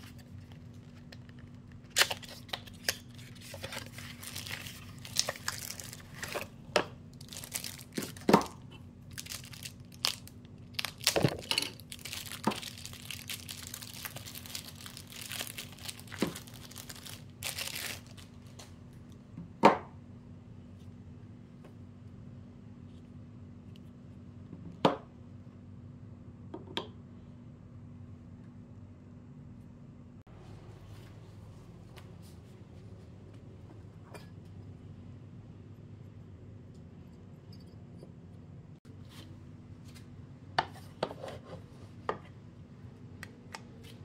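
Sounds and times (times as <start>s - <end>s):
plastic wrapping crinkling and tearing: 0.0s - 6.5s, 7.2s - 18.7s.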